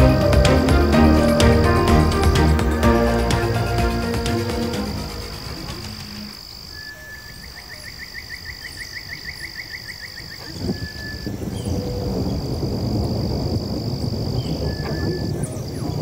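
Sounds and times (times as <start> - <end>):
rapid pulsed frog call: 3.9 - 10.4.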